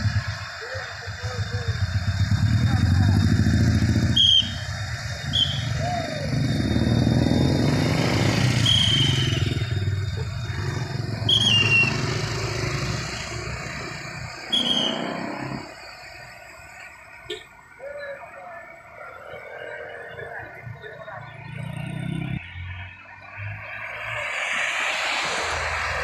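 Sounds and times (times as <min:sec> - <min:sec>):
traffic rumble: 0:00.0 - 0:26.0
traffic whistle blasts: 0:00.1 - 0:20.3.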